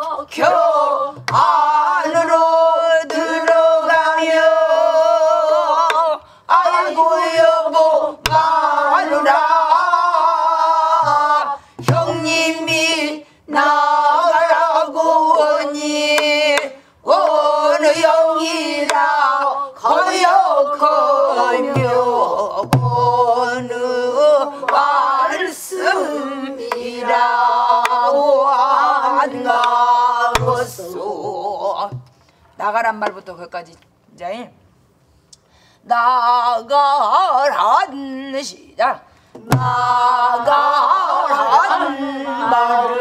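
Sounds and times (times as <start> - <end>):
group singing in unison: 0.0 - 32.2, 35.9 - 43.0
barrel drum strokes: 29.6 - 30.9, 39.4 - 40.0.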